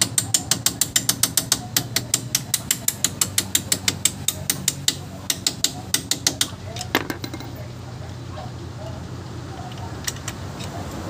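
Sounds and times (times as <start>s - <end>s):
ratchet wrench clicking: 0.0s - 7.4s.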